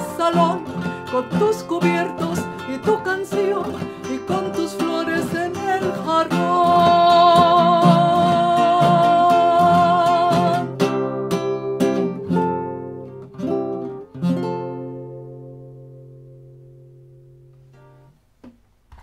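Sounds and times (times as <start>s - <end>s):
woman singing with vibrato: 0.0s - 10.8s
acoustic guitar plucking: 0.0s - 19.0s.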